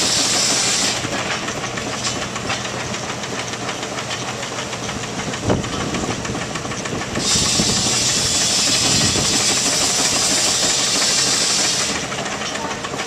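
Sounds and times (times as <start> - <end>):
steam venting hiss: 0.0 - 1.2, 7.1 - 12.3
steam traction engine running: 0.0 - 13.0.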